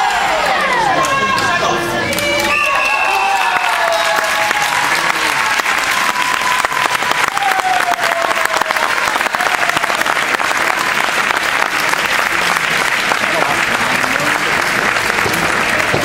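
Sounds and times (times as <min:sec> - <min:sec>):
spectators applauding: 0:00.0 - 0:16.0.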